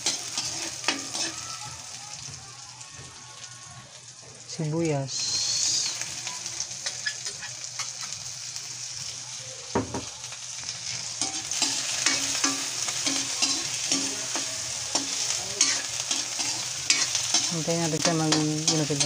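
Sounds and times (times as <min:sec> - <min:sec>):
metal spatula scraping a wok: 0:00.0 - 0:01.5, 0:06.7 - 0:08.2, 0:10.8 - 0:19.0
onions sizzling in hot oil: 0:00.0 - 0:19.0
knock: 0:09.8 - 0:10.1.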